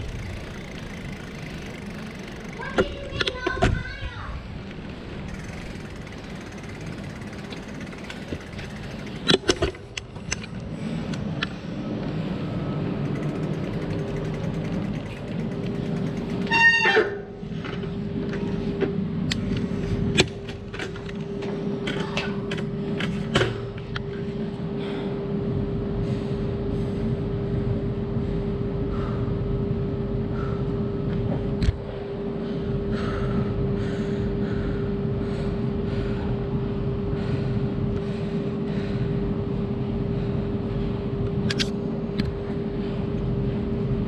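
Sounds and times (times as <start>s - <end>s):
bicycle clicking and clanking: 0.0s - 4.0s, 4.6s - 24.3s
steady low hum: 0.0s - 44.0s.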